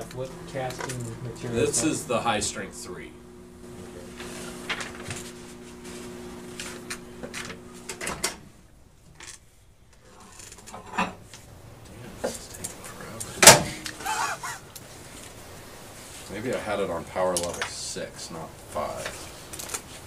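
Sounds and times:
microwave oven humming: 0.0 - 9.2, 10.5 - 20.0
microwave door opening: 6.6 - 8.5, 13.4 - 14.0.

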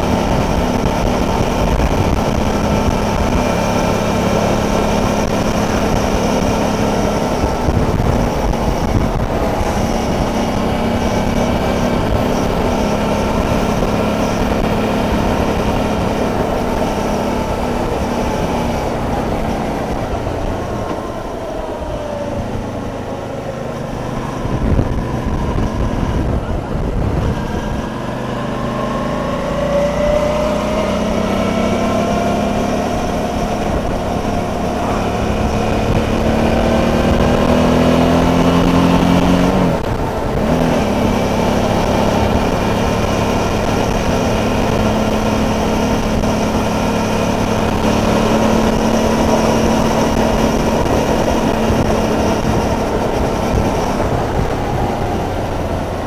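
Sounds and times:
motorcycle engine running: 0.0 - 56.0
wind and road rush: 0.0 - 56.0.

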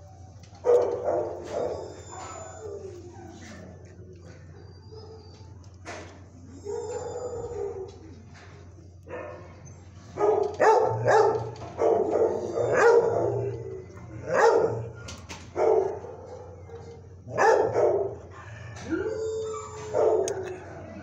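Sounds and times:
dog barking: 0.6 - 2.4, 9.1 - 9.6, 10.2 - 13.5, 14.3 - 18.3, 19.9 - 20.4.

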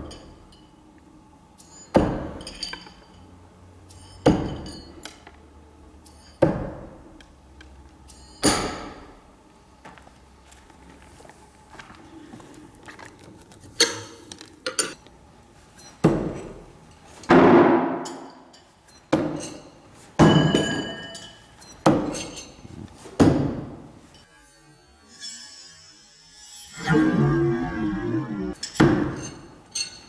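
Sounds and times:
metallic blade ring: 3.9 - 5.0, 8.1 - 8.5, 20.4 - 22.6.

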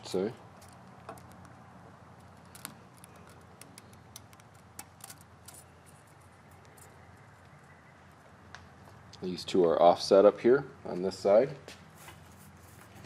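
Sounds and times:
low steady hum: 0.0 - 13.0
small metallic clicks and ticks: 0.1 - 1.6, 2.2 - 7.7.

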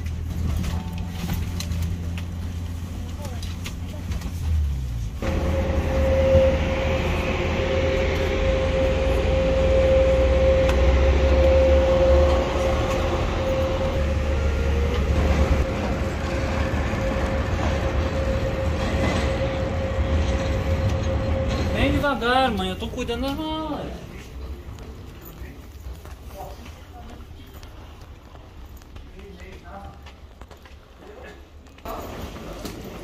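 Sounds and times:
machinery low rumble: 0.0 - 26.2
constant mid-pitched whine: 5.2 - 22.0.

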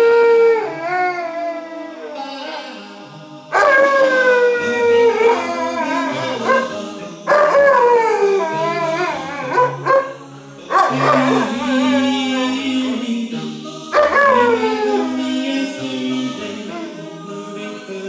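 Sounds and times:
dog howling: 0.0 - 2.6, 3.5 - 13.1, 13.9 - 17.2
a cappella vocal group singing: 2.2 - 18.0.

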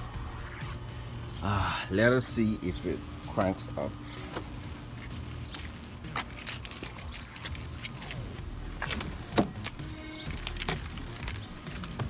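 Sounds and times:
car keys jangling: 5.0 - 12.0.

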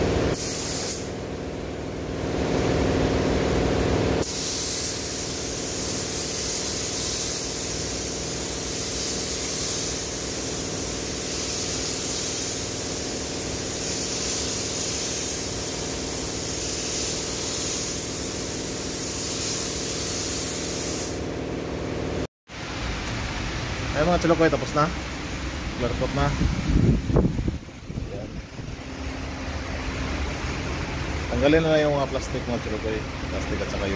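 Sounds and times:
paint spray gun hissing: 0.0 - 22.3.

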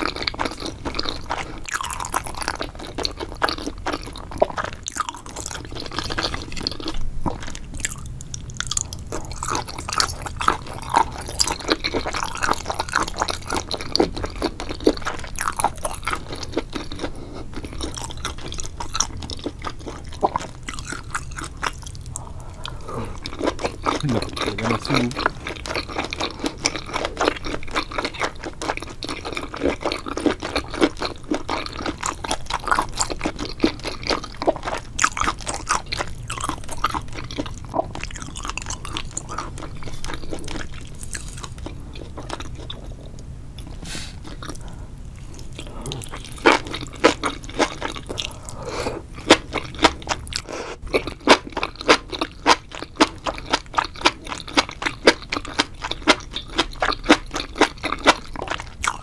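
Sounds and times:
person chewing crunchy food: 0.0 - 59.0.

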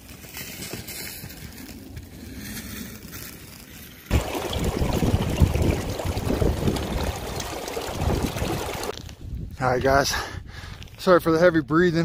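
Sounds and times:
stream rushing over rocks: 4.1 - 8.9.

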